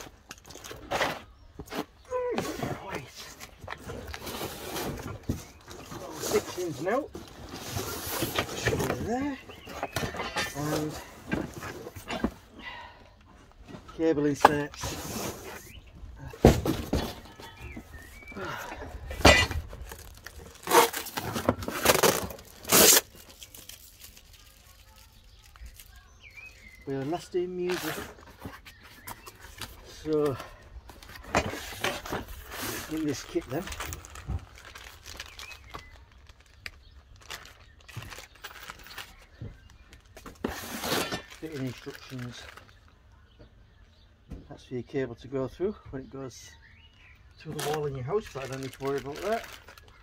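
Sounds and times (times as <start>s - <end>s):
packaging rustling: 16.6s - 42.9s, 47.5s - 50.0s.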